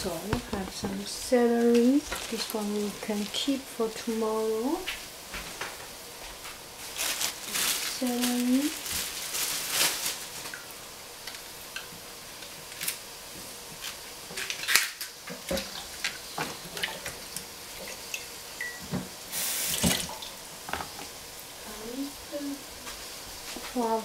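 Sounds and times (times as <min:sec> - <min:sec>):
water dripping: 0:15.5 - 0:18.8, 0:19.7 - 0:20.4
tap water splashing: 0:19.7 - 0:21.1.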